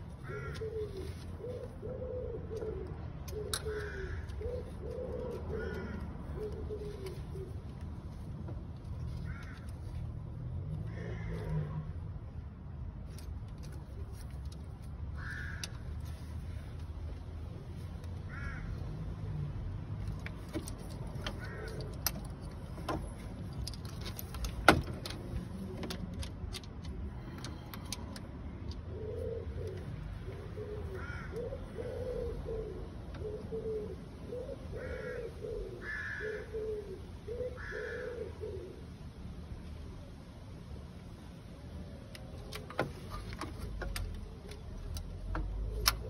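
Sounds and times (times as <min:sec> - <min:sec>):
bird cooing: 0:00.2 - 0:07.9, 0:28.8 - 0:39.0, 0:43.8 - 0:46.0.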